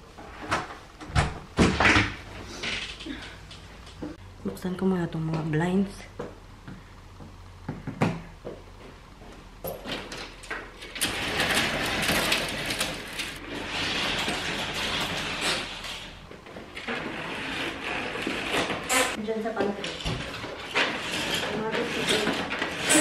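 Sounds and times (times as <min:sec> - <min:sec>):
curtain runners sliding: 0:09.8 - 0:23.0
curtain track clicks: 0:09.8 - 0:23.0.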